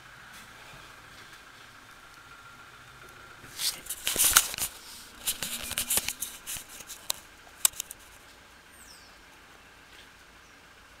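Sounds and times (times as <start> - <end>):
camera handling rustles and clicks: 3.6 - 8.2
faint high chirp: 8.7 - 9.2.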